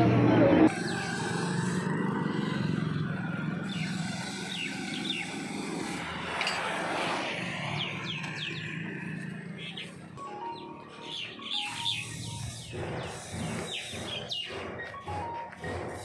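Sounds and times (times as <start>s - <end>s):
high bird chirps: 9.6s - 14.7s.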